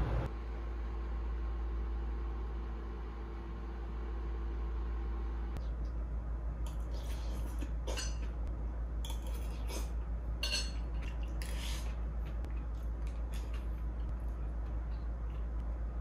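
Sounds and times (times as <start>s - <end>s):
spoon clinking on ceramic bowls: 10.4s - 11.2s.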